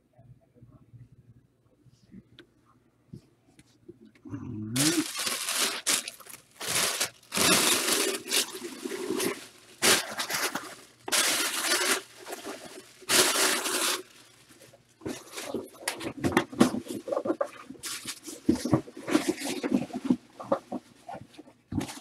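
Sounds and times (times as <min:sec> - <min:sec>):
packaging tearing and crumpling: 0:04.8 - 0:20.6.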